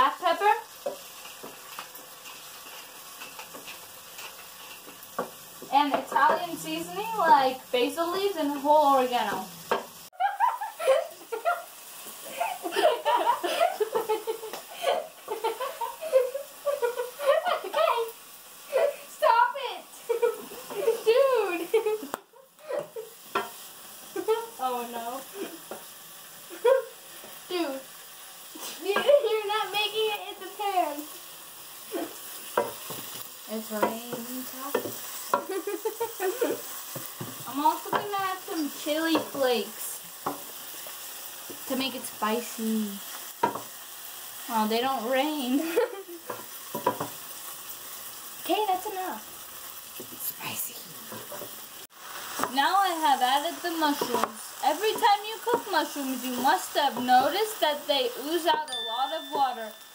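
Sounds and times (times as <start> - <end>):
vegetables sizzling in a pan: 0.0 - 59.9
spatula scraping a pan: 0.8 - 7.6, 31.8 - 42.1, 45.7 - 47.6, 51.0 - 58.7
girls giggling and laughing: 10.1 - 18.1, 20.0 - 23.2, 35.4 - 36.7.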